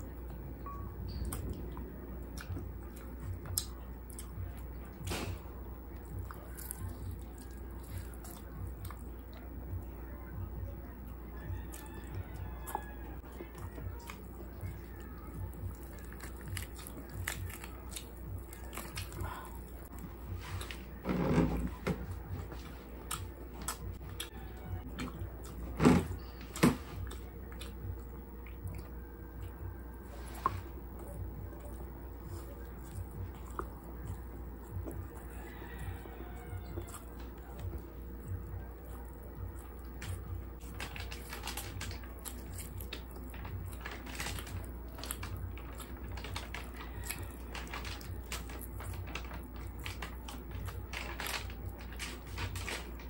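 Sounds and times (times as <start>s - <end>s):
wet chewing: 0.0s - 53.0s
lip smacks: 2.3s - 5.4s.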